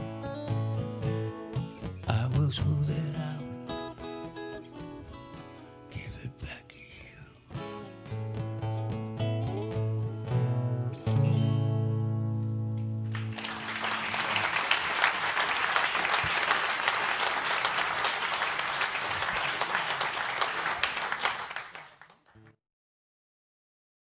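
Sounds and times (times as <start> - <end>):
audience applause: 13.1 - 22.5.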